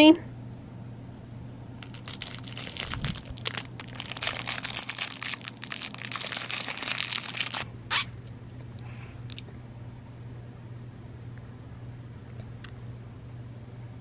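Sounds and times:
plastic wrapper crinkling: 1.8 - 7.7.

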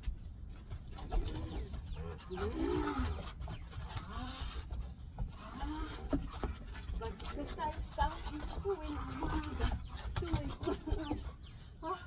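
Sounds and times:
dogs growling in play: 1.0 - 7.4.

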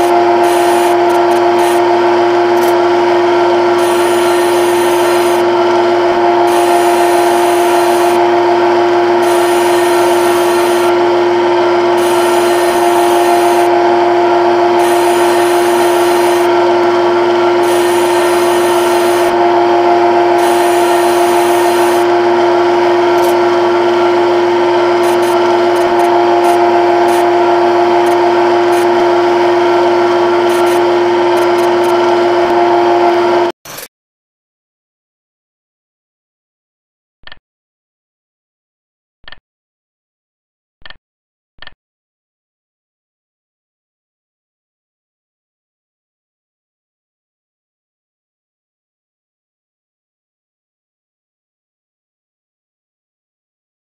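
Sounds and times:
lathe spindle hum: 0.0 - 33.5.

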